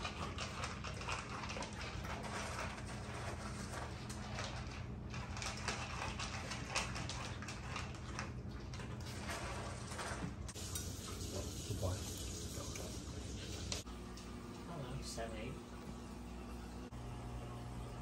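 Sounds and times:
dog crunching kibble: 0:00.0 - 0:10.5
kibble rattling in plastic bowl: 0:00.0 - 0:10.5.

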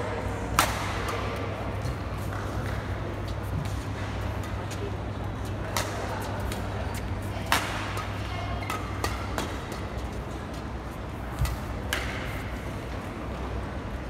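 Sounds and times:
low hall hum: 0:00.0 - 0:14.0
racket striking shuttlecock: 0:00.6 - 0:02.8, 0:07.4 - 0:10.1, 0:11.4 - 0:12.5.

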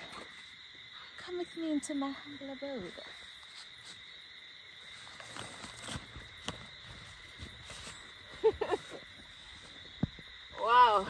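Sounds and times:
crickets droning: 0:00.0 - 0:11.0
soft footsteps on grass: 0:05.0 - 0:10.4.

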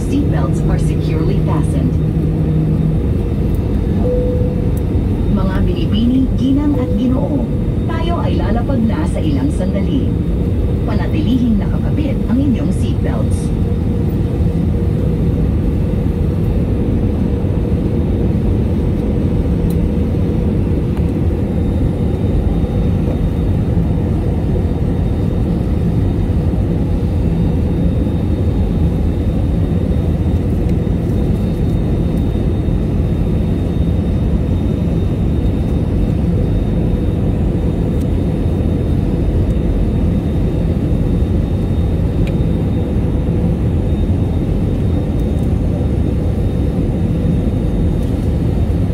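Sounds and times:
aircraft engines and rushing air: 0:00.0 - 0:48.9
steady cabin hum: 0:00.0 - 0:48.9.

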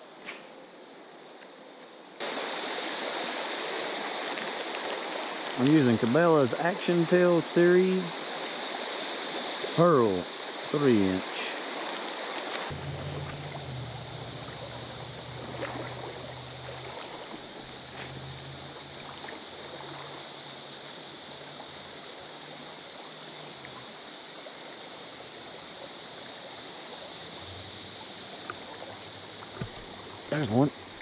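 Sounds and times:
river water running over riffle: 0:02.2 - 0:31.0
low droning hum: 0:12.7 - 0:20.8.

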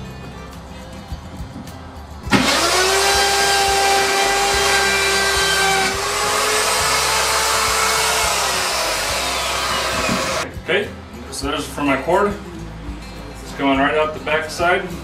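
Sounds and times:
power tool cutting wood: 0:02.3 - 0:10.5.

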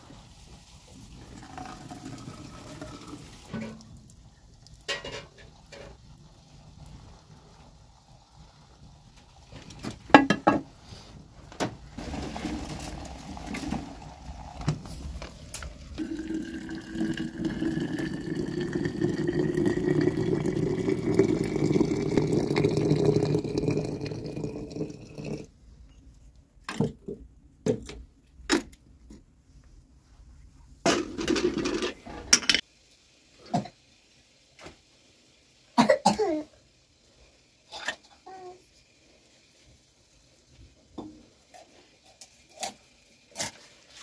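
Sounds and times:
water pouring into metal teapot: 0:00.8 - 0:09.7, 0:12.0 - 0:14.8, 0:15.5 - 0:25.5.

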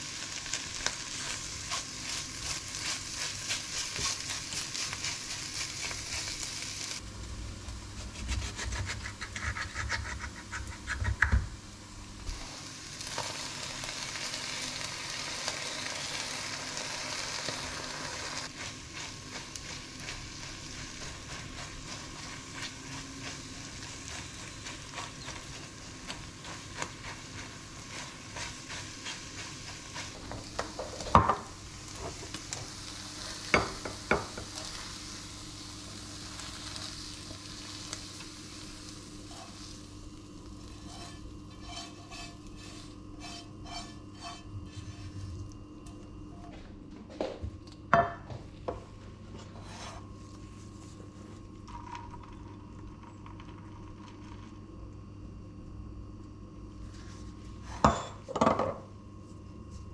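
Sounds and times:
egg sizzling in a frying pan: 0:00.0 - 0:07.0, 0:07.6 - 0:45.2
spatula scraping a pan: 0:01.1 - 0:06.6, 0:08.0 - 0:11.1, 0:40.6 - 0:45.4, 0:49.4 - 0:50.1
bowl set down on counter: 0:57.9 - 0:58.8.

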